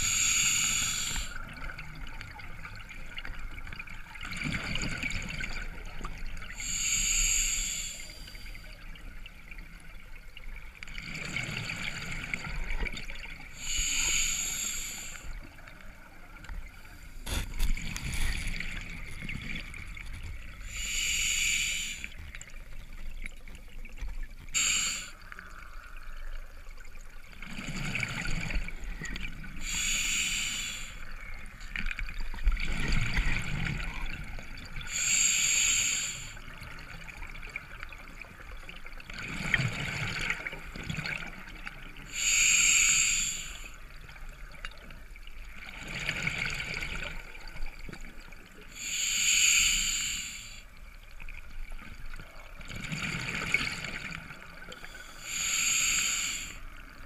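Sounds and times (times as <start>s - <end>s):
diver regulator breathing hiss: 0.0s - 1.5s, 6.6s - 8.7s, 13.6s - 15.4s, 20.6s - 22.2s, 24.5s - 25.4s, 29.6s - 31.3s, 34.9s - 36.5s, 42.0s - 43.9s, 48.7s - 50.8s, 54.7s - 56.9s.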